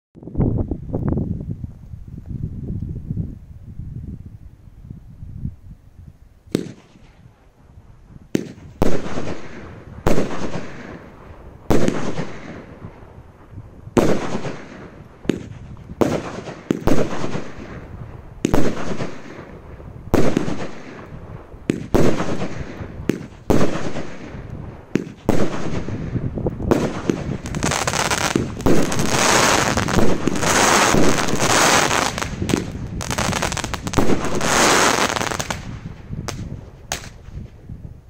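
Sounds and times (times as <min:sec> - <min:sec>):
firework bangs: 0:06.5 - 0:07.3, 0:08.3 - 0:13.0, 0:14.0 - 0:37.4.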